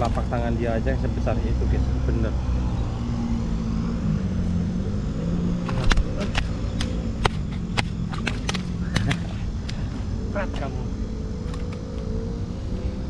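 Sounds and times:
low engine hum: 0:00.0 - 0:13.0
sharp slaps and taps: 0:05.6 - 0:09.8.

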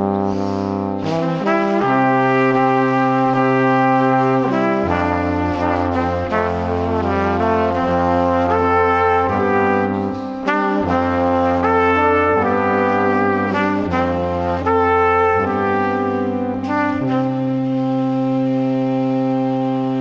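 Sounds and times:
deep bass: 0:00.0 - 0:20.0.

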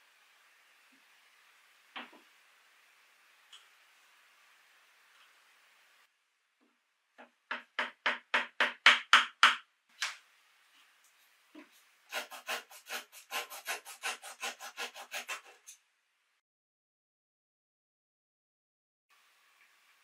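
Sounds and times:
handsaw cutting wood: 0:12.1 - 0:15.8.

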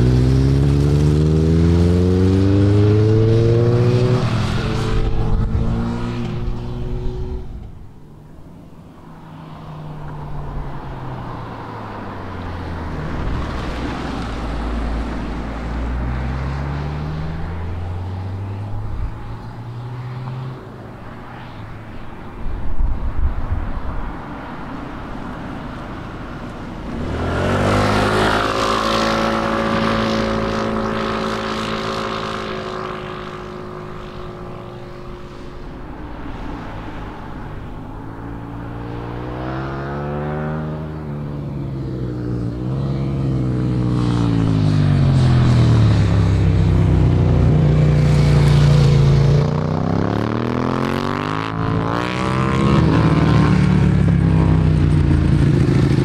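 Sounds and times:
motorcycle engine passing: 0:00.0 - 0:07.8, 0:26.7 - 0:35.7, 0:38.4 - 0:56.0
motorcycle revving and slowing: 0:00.0 - 0:07.8, 0:26.8 - 0:35.3, 0:38.7 - 0:56.0
car engine driving away: 0:00.0 - 0:08.0, 0:25.2 - 0:56.0
wind gusting on microphone: 0:02.5 - 0:07.9, 0:21.1 - 0:32.5.

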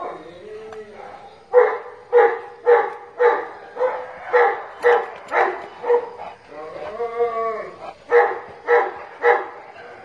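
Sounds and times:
dog barking: 0:01.0 - 0:06.4, 0:07.9 - 0:10.0.

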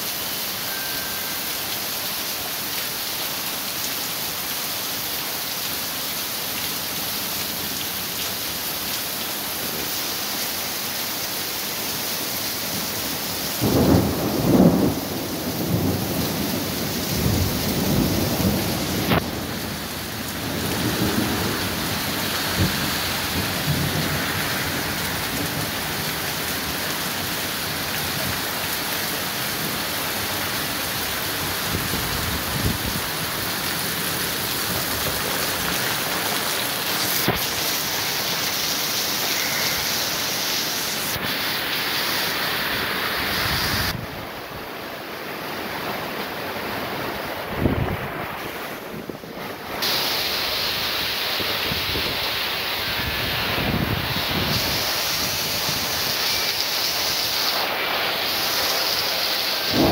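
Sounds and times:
heavy rain pouring: 0:00.0 - 0:59.9
thunder rumbling: 0:59.6 - 0:59.9.

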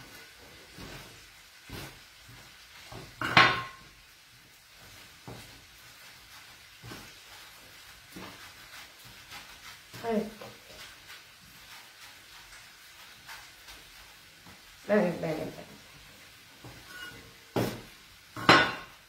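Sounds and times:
hands rolling dough: 0:00.0 - 0:03.9, 0:04.7 - 0:15.8.

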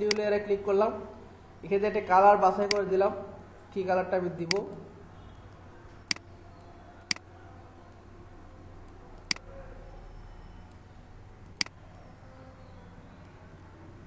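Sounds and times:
faint low hum: 0:00.0 - 0:14.0
computer mouse clicks: 0:06.0 - 0:07.2, 0:11.4 - 0:11.8.

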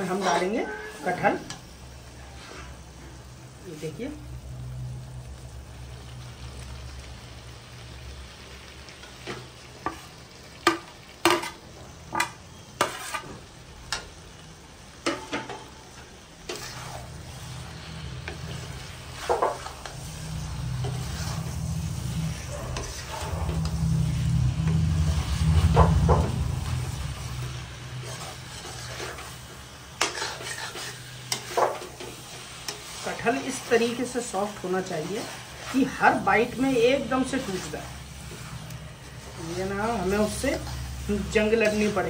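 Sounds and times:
food sizzling: 0:00.0 - 0:42.0
spatula knocking and scraping a pan: 0:09.2 - 0:14.1, 0:15.0 - 0:17.1, 0:18.2 - 0:20.0, 0:29.9 - 0:34.0
low rumble: 0:16.9 - 0:30.0, 0:35.3 - 0:42.0.

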